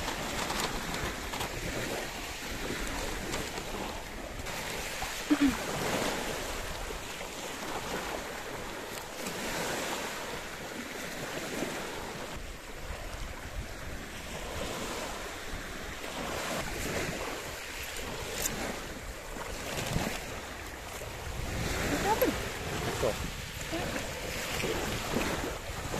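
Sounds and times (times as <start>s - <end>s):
small waves breaking on beach: 0.0s - 25.9s
wind buffeting microphone: 11.2s - 25.9s.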